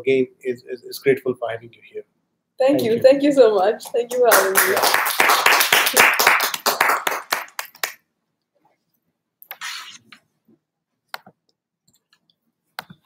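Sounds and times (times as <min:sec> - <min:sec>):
hand claps of applause: 0:04.1 - 0:08.0.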